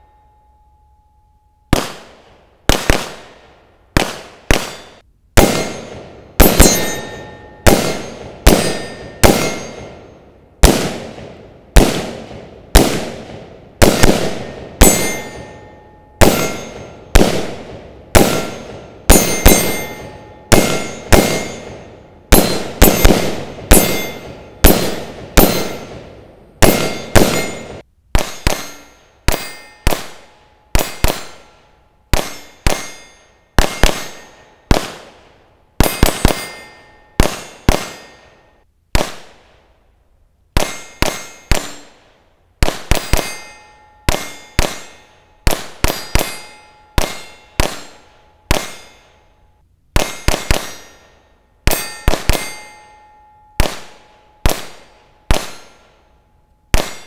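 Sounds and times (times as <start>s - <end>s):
gunshots: 1.7s - 38.3s, 38.9s - 39.5s, 40.6s - 49.0s, 50.0s - 51.0s, 51.7s - 52.7s, 53.6s - 56.0s, 56.7s - 57.0s
steel plate clanging: 5.6s - 10.2s, 14.4s - 17.1s, 18.2s - 23.1s, 23.7s - 25.9s, 26.7s - 34.7s, 35.8s - 38.5s, 43.0s - 56.0s.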